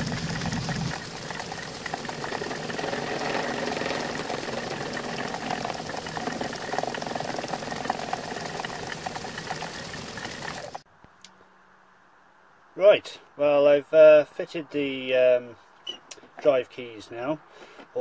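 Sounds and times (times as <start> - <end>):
end mill cutting metal ticking: 0.0 - 10.8
machine running steadily: 0.0 - 10.8.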